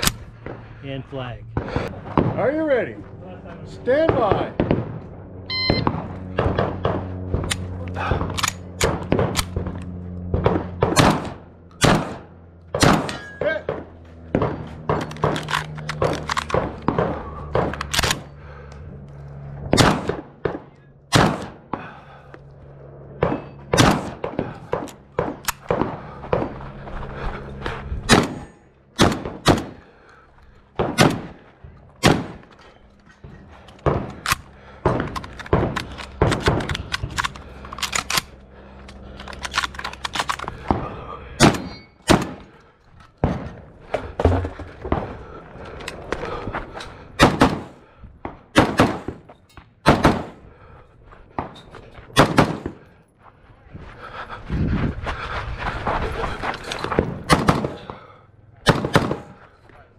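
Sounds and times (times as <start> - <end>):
pistol gunshots: 4.0 - 5.0, 5.6 - 9.7, 10.3 - 18.3, 19.7 - 21.9, 23.2 - 26.5, 28.1 - 29.9, 30.7 - 31.4, 32.0 - 32.5, 41.4 - 42.6, 47.2 - 47.8, 48.5 - 50.5, 52.1 - 52.8, 56.9 - 59.4
shotgun blasts: 4.0 - 5.0, 5.6 - 9.7, 10.3 - 18.2, 19.7 - 22.0, 23.2 - 26.5, 28.1 - 29.8, 30.8 - 31.4, 32.0 - 32.5, 40.6 - 42.5, 47.2 - 47.8, 48.5 - 50.4, 52.2 - 52.8, 56.9 - 59.4.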